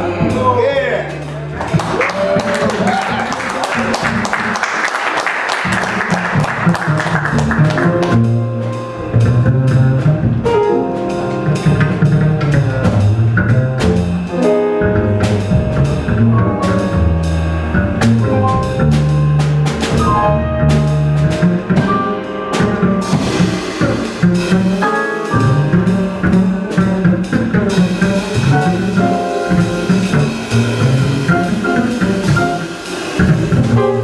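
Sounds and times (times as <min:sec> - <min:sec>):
walking upright bass: 0:00.0 - 0:04.7, 0:05.4 - 0:34.0
grand piano: 0:00.0 - 0:34.0
applause: 0:01.6 - 0:08.1
drum kit with cymbals: 0:07.1 - 0:34.0.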